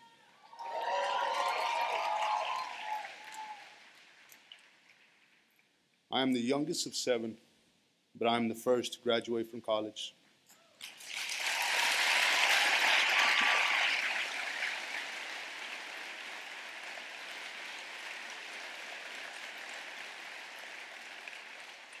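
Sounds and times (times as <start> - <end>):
audience applauding: 0.0 - 5.2, 10.8 - 22.0.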